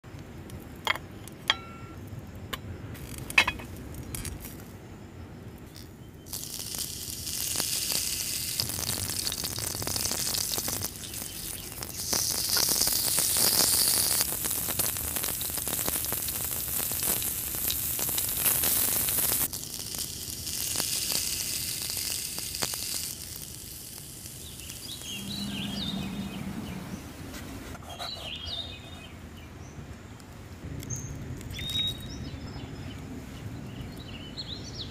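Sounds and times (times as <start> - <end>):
steak sizzling in oil: 6.3 - 25.5
faint bird chirps: 24.4 - 27.1.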